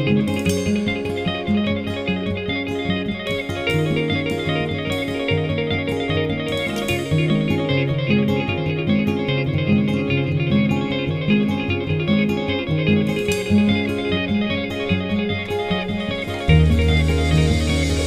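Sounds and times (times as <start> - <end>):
plucked guitar music: 0.0 - 18.0
bass line: 16.5 - 18.0.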